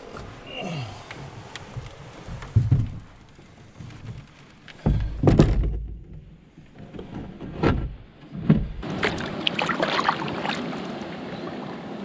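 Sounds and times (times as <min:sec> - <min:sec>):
water splashing against canoe: 0:01.2 - 0:11.7
hollow knocks on canoe hull: 0:04.8 - 0:06.2.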